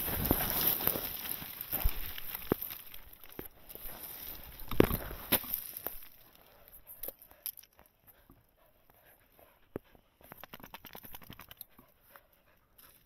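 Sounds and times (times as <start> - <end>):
footsteps on dry grass and twigs: 0.0 - 7.0.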